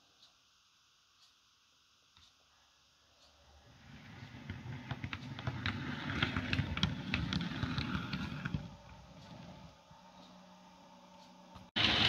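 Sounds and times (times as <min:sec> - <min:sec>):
wheels clicking over rail joints: 0:04.2 - 0:09.6.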